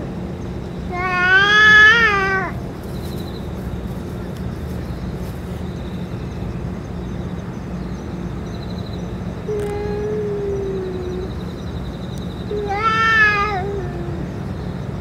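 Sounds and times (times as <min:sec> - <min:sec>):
low background hum: 0:00.0 - 0:15.0
cat yowling: 0:00.9 - 0:02.6, 0:12.5 - 0:14.3.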